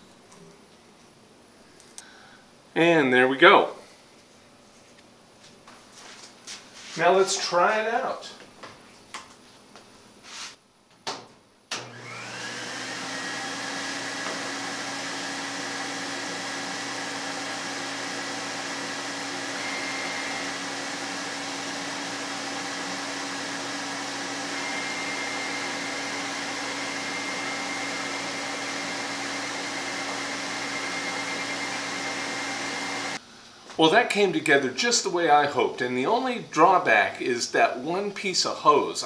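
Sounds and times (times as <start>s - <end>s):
vacuum dust collector rushing: 11.8s - 33.2s.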